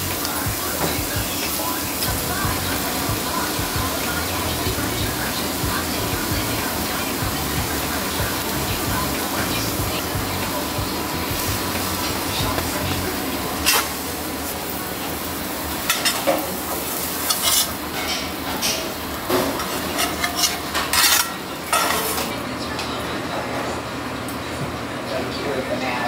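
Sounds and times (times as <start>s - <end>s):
food sizzling on a griddle: 0.0s - 22.3s
metal spatula scraping griddle: 13.6s - 14.1s, 15.8s - 22.3s.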